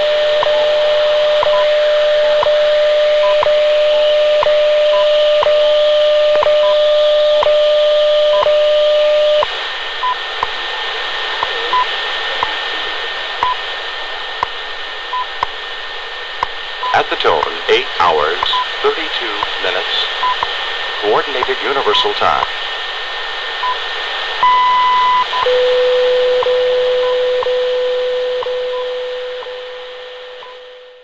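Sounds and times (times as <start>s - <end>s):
radio static hiss: 0.0s - 31.0s
time signal ticks: 18.4s - 20.5s, 21.3s - 21.6s.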